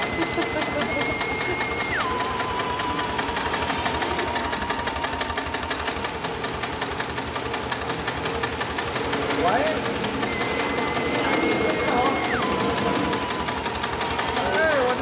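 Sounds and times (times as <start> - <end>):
sewing machine stitching: 0.0 - 15.0
thin high steady tone: 10.2 - 15.0.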